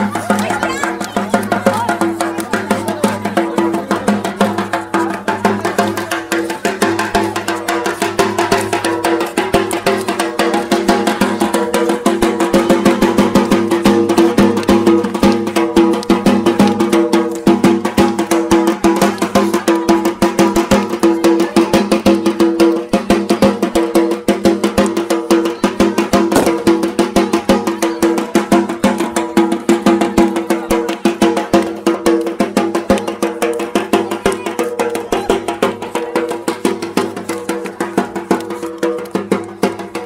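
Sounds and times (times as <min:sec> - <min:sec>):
fast steady drumming: 0:00.0 - 0:40.0.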